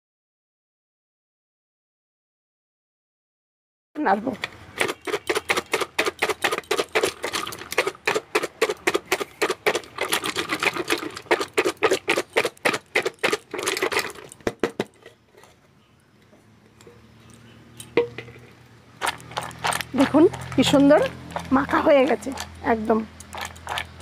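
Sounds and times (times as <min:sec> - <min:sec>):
snacks rattling in steel bowl: 0:04.7 - 0:15.6, 0:19.0 - 0:24.0.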